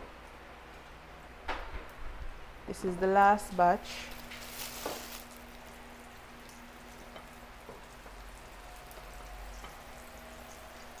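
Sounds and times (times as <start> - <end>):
oil crackles: 3.8 - 7.1
fish sizzling in hot oil: 3.9 - 11.0.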